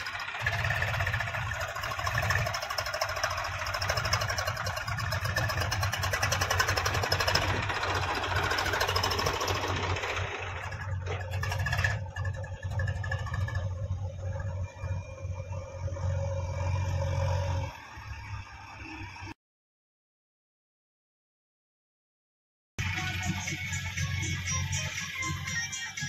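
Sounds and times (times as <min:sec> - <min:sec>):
engine knocks: 0:00.0 - 0:13.8
tractor diesel engine running: 0:00.0 - 0:17.8, 0:22.8 - 0:26.0.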